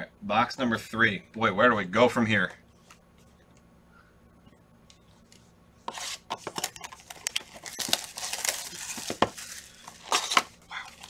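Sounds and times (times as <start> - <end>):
cardboard rustling: 5.8 - 11.0
plastic wrap crinkling and tearing: 5.9 - 11.0.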